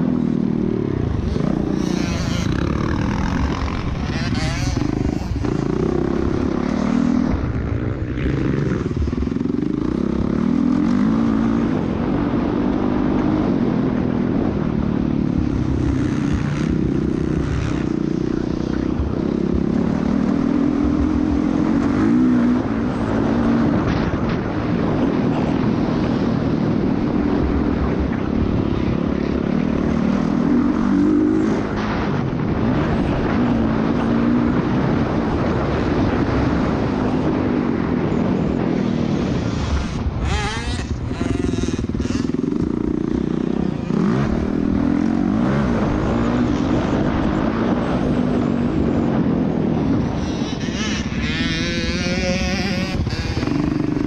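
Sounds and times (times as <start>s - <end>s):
dirt bike engine revving: 0.0s - 54.0s
wind noise: 0.0s - 54.0s.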